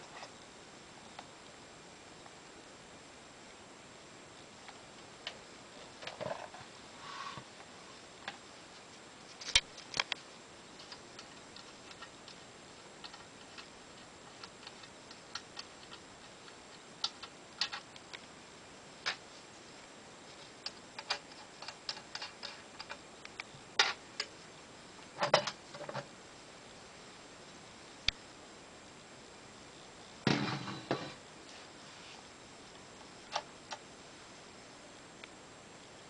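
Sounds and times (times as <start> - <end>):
light clicks and small knocks: 9.3 - 18.3, 20.3 - 24.4, 25.0 - 26.1.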